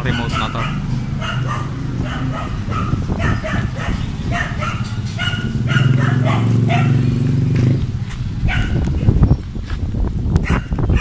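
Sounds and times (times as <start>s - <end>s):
dog barking: 0.0s - 7.1s, 8.5s - 8.8s, 10.4s - 11.0s.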